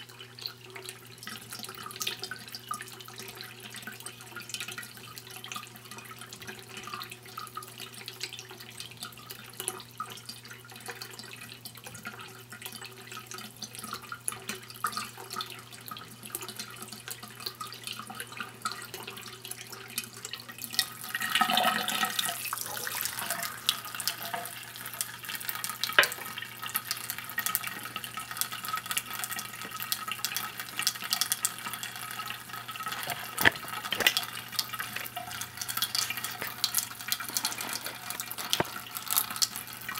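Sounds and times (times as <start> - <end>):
tap water trickling into cup: 0.3 - 39.9
water splashing into drain: 20.0 - 39.9
cup being handled: 26.0 - 26.3, 32.9 - 35.2, 36.0 - 38.8.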